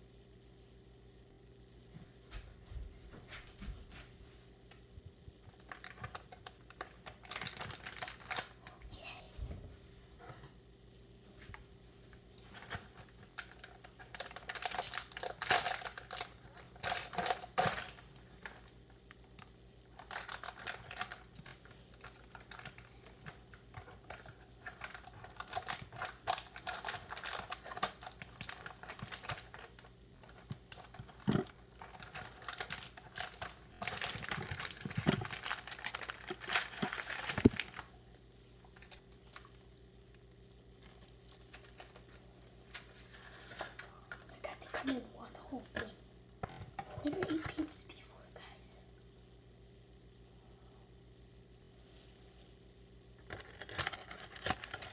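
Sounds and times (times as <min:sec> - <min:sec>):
plastic wrapping crinkling: 0:05.5 - 0:08.8, 0:12.4 - 0:38.0, 0:38.6 - 0:40.2, 0:40.8 - 0:45.0, 0:53.2 - 0:54.9.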